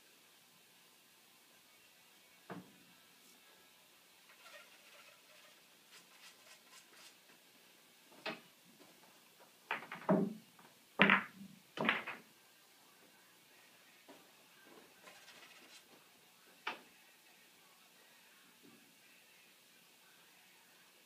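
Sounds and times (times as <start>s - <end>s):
pool balls knocking: 9.7s - 10.4s, 11.0s - 12.2s.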